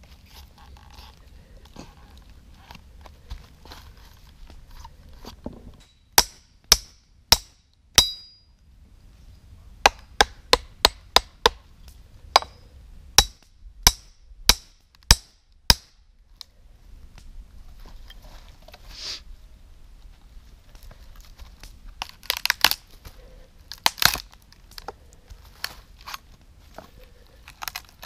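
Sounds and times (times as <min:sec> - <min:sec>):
hatchet chopping log: 0:06.1 - 0:08.4, 0:09.8 - 0:11.6, 0:12.4 - 0:12.6, 0:13.2 - 0:16.0, 0:23.7 - 0:24.3.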